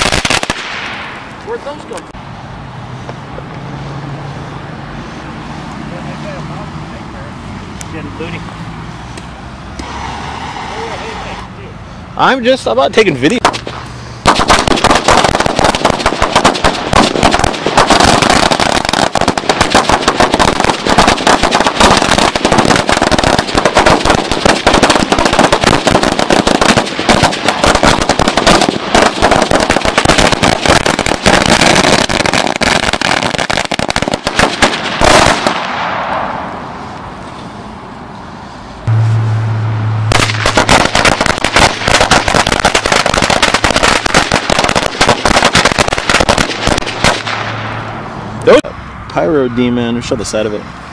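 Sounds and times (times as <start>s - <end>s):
rapid string of firecracker bangs: 0.0s - 1.6s, 13.2s - 36.6s, 38.8s - 47.9s.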